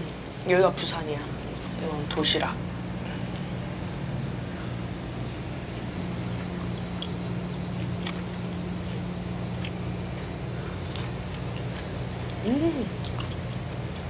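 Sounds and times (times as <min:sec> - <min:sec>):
low machinery hum: 0:00.0 - 0:14.0
person chewing: 0:06.4 - 0:14.0.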